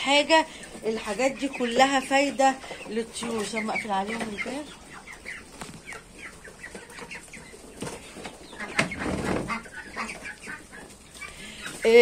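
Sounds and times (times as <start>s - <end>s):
chickens and ducks clucking: 0.0s - 12.0s
wings flapping: 7.7s - 10.8s.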